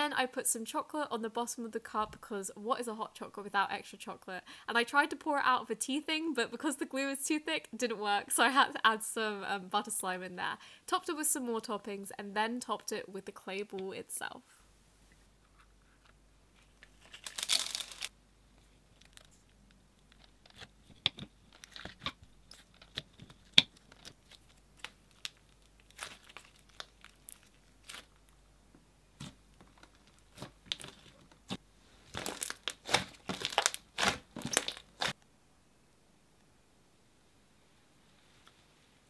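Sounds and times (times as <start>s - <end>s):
slime crackling and popping: 17.0s - 18.1s, 20.5s - 28.2s, 29.2s - 35.2s.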